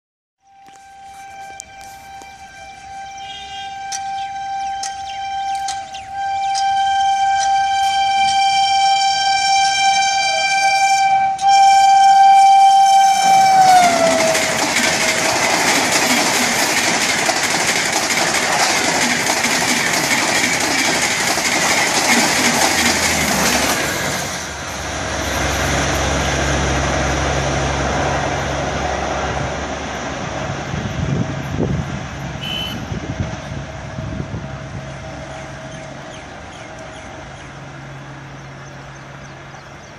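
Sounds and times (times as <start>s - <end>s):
locomotive horn blast: 0.4s - 16.2s, 30.9s - 36.0s
train rushing past on rails: 0.8s - 39.9s.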